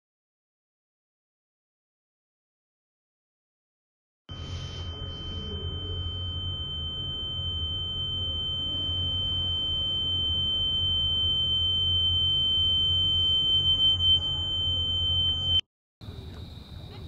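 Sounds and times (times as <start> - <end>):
high-pitched drone tone: 4.3 - 15.6.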